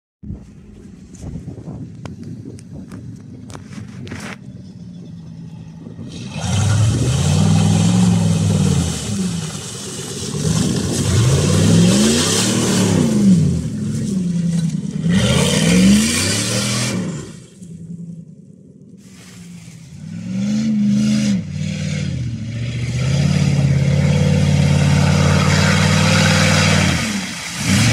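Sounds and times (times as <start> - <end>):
engine revving: 5.4 - 18.0, 19.6 - 27.9.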